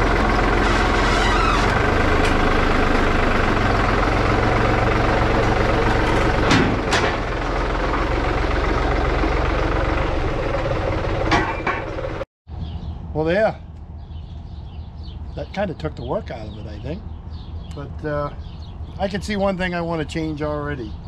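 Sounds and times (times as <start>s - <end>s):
tractor diesel engine running: 0.0s - 12.2s.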